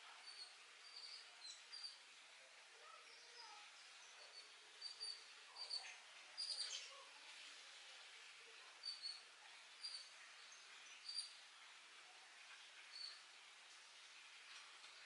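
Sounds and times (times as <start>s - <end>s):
faint high bird chirps: 0.2s - 2.0s, 2.8s - 7.1s, 8.7s - 11.4s, 12.8s - 13.2s.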